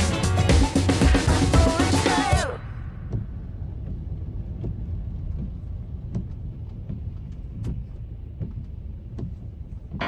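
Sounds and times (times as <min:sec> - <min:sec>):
road and engine rumble: 0:00.0 - 0:10.0
rain tapping on car: 0:02.4 - 0:10.0.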